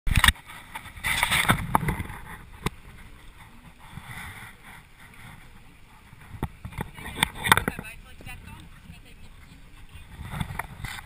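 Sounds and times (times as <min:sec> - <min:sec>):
wind on microphone: 0:00.1 - 0:11.0.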